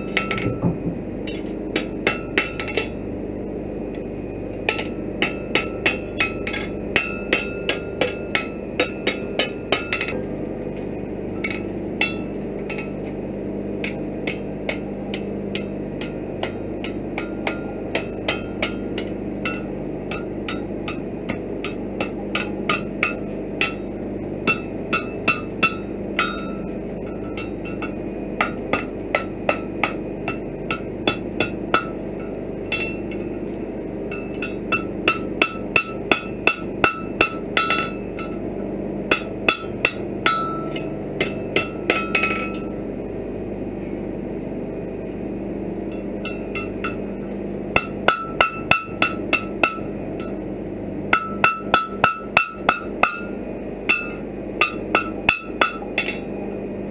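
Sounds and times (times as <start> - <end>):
hammer striking iron on anvil: 0.0 - 3.2, 4.6 - 10.3, 11.4 - 13.1, 13.8 - 43.0, 45.9 - 50.4, 51.1 - 56.5
steady low hum: 0.0 - 56.9.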